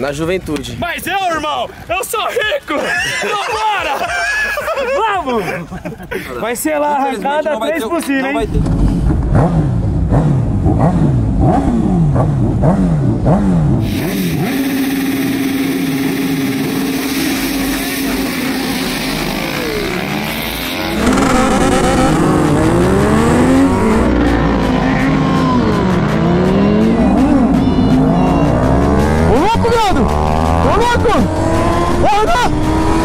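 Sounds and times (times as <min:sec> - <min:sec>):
motorcycle engines revving: 0:08.4 - 0:33.0.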